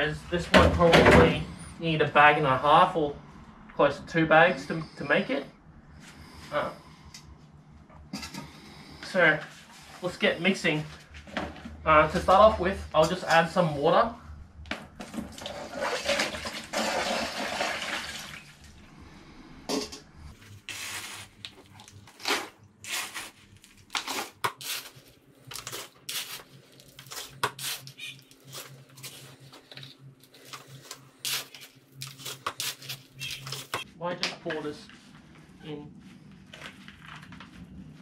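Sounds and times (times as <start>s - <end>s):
water pouring into plastic tub: 15.3s - 18.8s
scoop scraping gravel: 15.5s - 18.1s, 20.4s - 29.5s.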